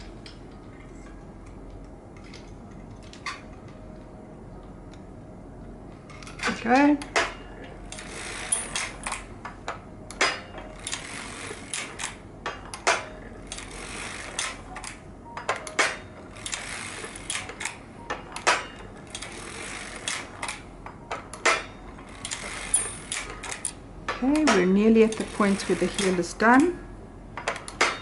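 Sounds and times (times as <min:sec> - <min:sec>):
light mechanical rattle: 0:06.0 - 0:26.8
knitting machine clicking and clacking: 0:06.1 - 0:26.8.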